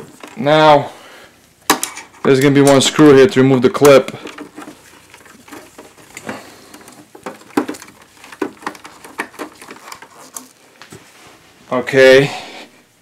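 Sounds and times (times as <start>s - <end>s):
screwdriver clicks and scrapes: 4.2s - 10.6s.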